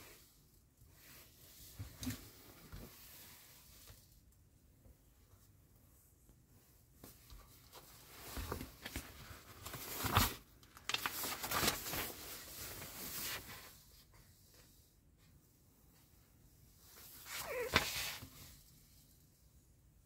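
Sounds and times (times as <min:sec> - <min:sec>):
magazine pages rustling: 0:07.6 - 0:13.7.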